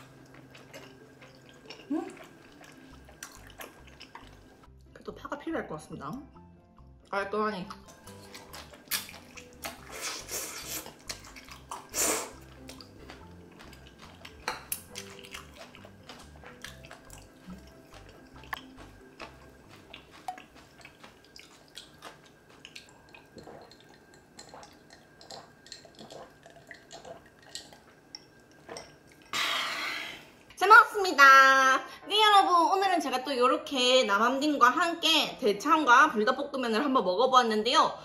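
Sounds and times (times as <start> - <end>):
wet chewing and mouth clicks: 0.0 - 4.7, 7.7 - 29.3
quiet music: 0.0 - 29.3
noodles slurped: 8.0 - 18.6.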